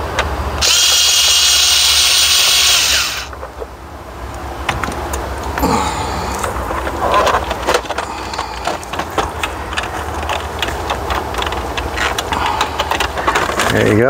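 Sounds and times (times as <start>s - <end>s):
plastic clicks and rattles: 6.4s - 14.0s.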